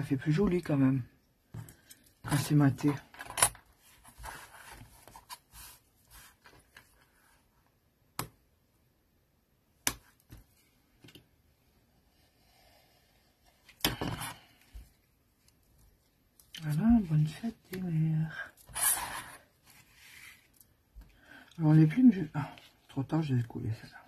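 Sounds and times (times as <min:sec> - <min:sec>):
paper and tools handled on a mat: 0:01.5 - 0:07.7, 0:12.1 - 0:21.2.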